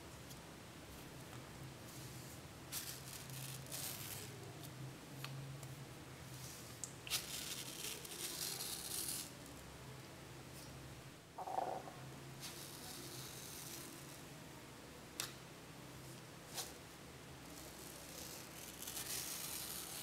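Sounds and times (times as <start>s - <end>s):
low steady hum: 9.4s - 12.4s.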